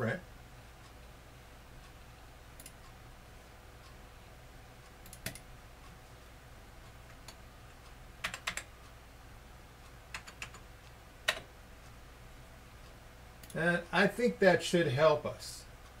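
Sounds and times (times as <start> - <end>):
faint steady background noise: 0.0 - 16.0
keyboard and mouse clicks: 2.6 - 2.8, 5.0 - 5.5, 8.2 - 8.7, 10.1 - 11.5.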